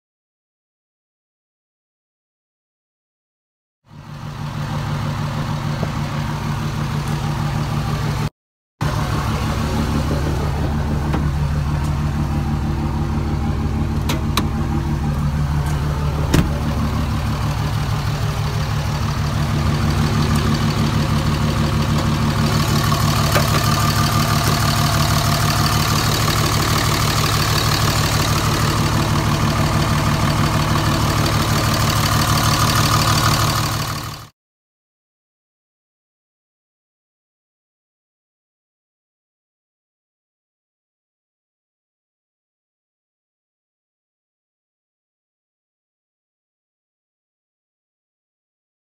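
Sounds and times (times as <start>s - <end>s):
diesel engine idling: 3.9s - 34.3s.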